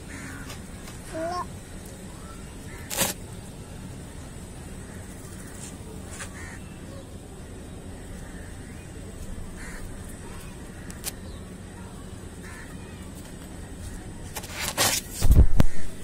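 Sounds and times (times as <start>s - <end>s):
low background hum: 0.0s - 16.0s
sharp crack: 2.8s - 3.2s
faint short bird calls: 4.8s - 7.1s.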